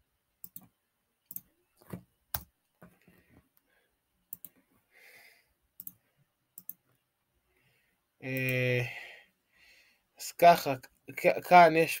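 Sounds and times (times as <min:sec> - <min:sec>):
computer mouse and keyboard clicks: 0:04.3 - 0:04.6, 0:06.6 - 0:07.0.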